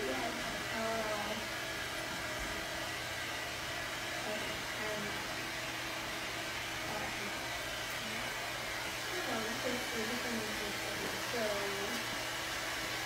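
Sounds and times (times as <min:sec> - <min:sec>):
hair dryer running: 0:00.0 - 0:13.0.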